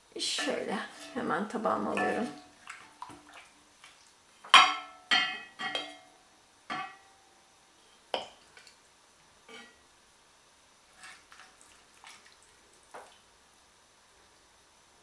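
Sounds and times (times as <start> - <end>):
ladle clinking on pot and plate: 1.9 - 2.5, 4.5 - 6.1, 6.7 - 7.1.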